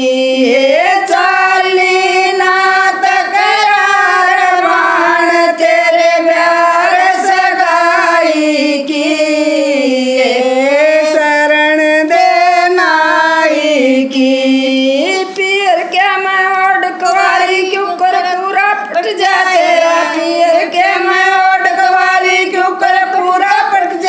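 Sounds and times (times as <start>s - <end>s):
women singing unaccompanied: 0.0s - 24.0s.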